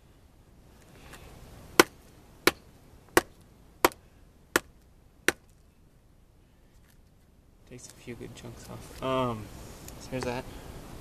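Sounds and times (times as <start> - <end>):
knife chopping into wet log: 1.8 - 2.6.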